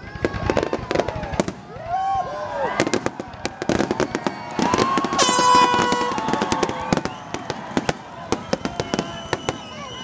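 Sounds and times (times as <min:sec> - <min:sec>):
fireworks bursting and crackling: 0:00.0 - 0:10.0
high whistling tone: 0:08.4 - 0:10.0.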